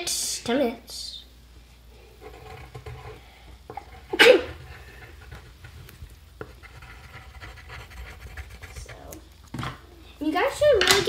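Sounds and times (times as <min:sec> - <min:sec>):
pencil scratching on paper: 0:02.2 - 0:03.2, 0:06.4 - 0:09.1.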